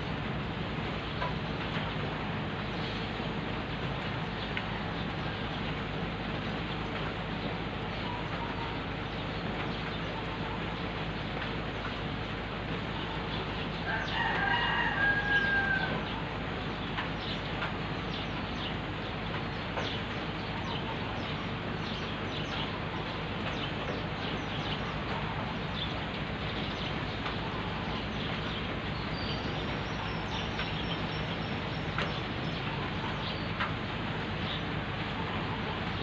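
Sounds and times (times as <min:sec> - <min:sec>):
rain on wet road: 0:00.0 - 0:36.0
rooster crowing: 0:13.8 - 0:16.2.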